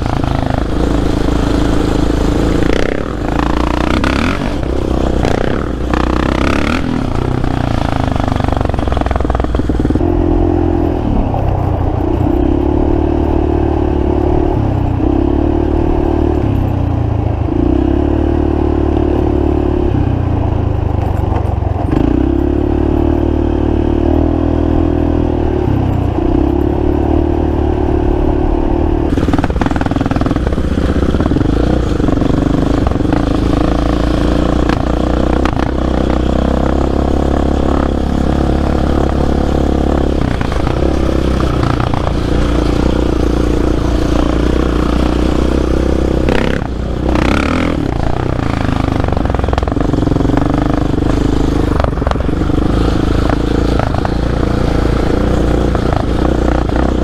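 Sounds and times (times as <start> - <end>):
atv engine revving: 0.0 - 57.0
rough rattling clatter: 29.1 - 57.0.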